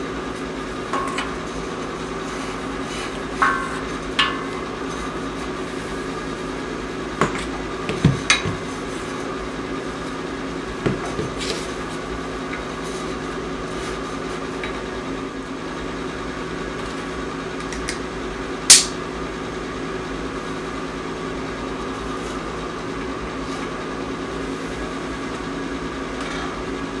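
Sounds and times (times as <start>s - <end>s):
machine hum: 0.0s - 27.0s.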